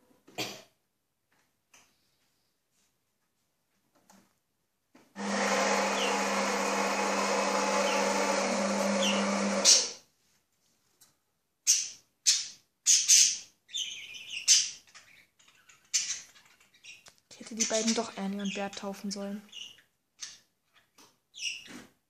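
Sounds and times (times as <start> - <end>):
coffee machine humming: 5.2 - 9.9
parrots chirping: 7.4 - 10.0, 11.6 - 18.7, 19.5 - 21.7.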